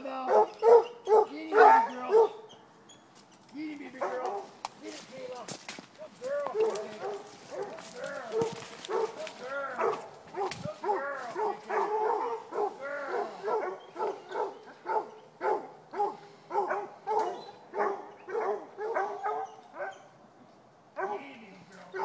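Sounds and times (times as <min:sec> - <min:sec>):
hounds barking: 0:00.2 - 0:02.5, 0:04.0 - 0:04.6, 0:06.3 - 0:20.2, 0:21.0 - 0:21.3.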